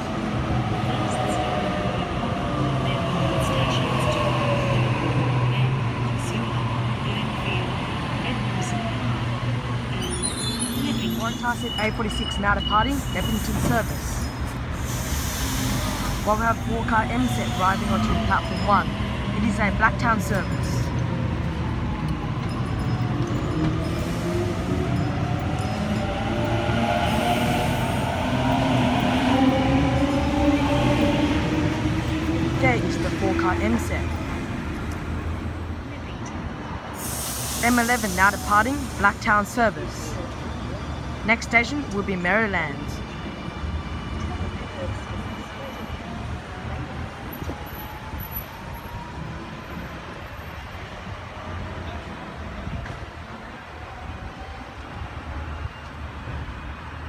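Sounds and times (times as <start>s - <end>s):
electric train humming: 12.9s - 35.7s.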